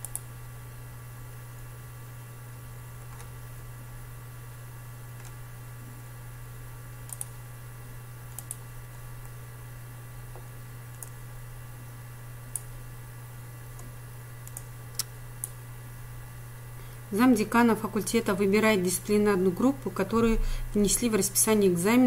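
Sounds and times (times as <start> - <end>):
computer mouse clicking: 0.0 - 0.3, 3.1 - 3.3, 7.0 - 7.4, 8.3 - 8.6, 10.9 - 11.2, 12.5 - 12.8, 13.8 - 15.6
low electrical hum: 0.0 - 22.0.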